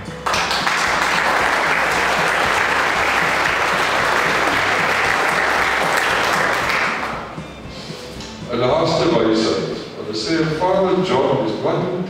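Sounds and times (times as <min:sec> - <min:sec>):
crowd applauding: 0:00.0 - 0:07.4.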